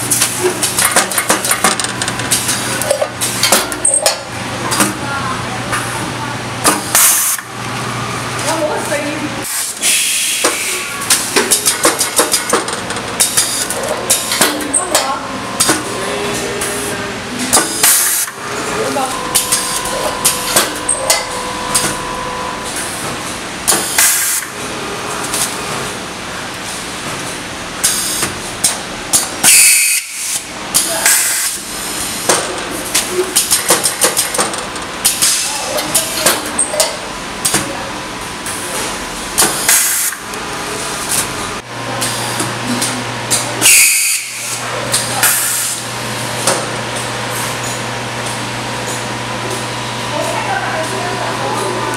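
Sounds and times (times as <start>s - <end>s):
packing machine running: 0.0s - 51.9s
machine clicks and knocks: 0.1s - 5.0s, 11.1s - 15.9s, 32.3s - 37.6s
compressed air hisses: 9.8s - 10.8s
low machine hum: 10.6s - 29.5s.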